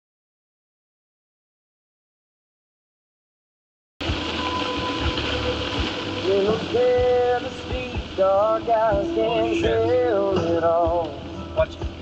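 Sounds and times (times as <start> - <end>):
rain hitting windshield: 4.0 - 12.0
song with singing voice: 4.1 - 12.0.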